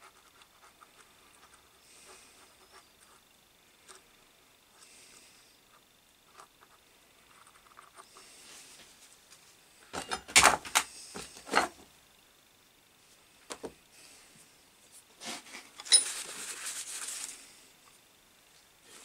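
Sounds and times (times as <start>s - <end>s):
rustling: 14.3s - 17.7s.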